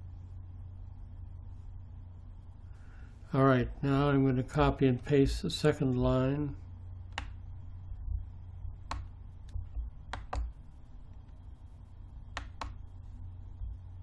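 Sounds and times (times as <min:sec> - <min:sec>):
low steady hum: 0:00.0 - 0:14.0
computer mouse buttons clicking: 0:07.1 - 0:07.4, 0:08.8 - 0:10.6, 0:12.3 - 0:12.8.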